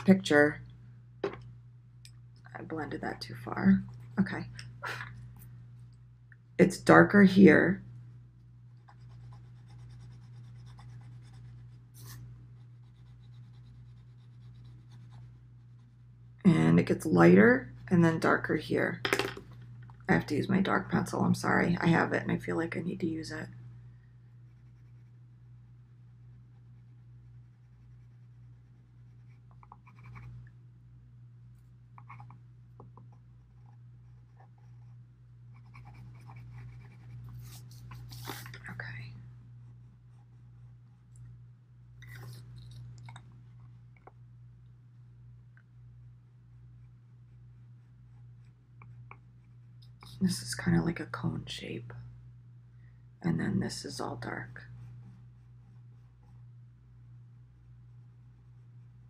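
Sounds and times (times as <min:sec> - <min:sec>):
steady low hum: 0:00.0 - 0:59.0
pencil scratching on paper: 0:08.8 - 0:16.0, 0:24.5 - 0:25.2, 0:26.5 - 0:30.3, 0:33.1 - 0:38.6.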